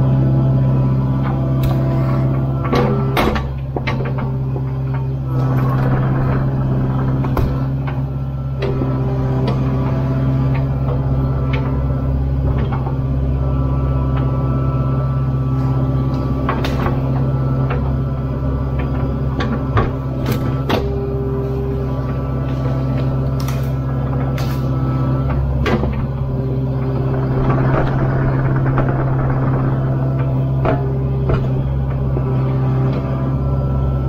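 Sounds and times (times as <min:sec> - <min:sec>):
excavator diesel engine running: 0:00.0 - 0:34.0.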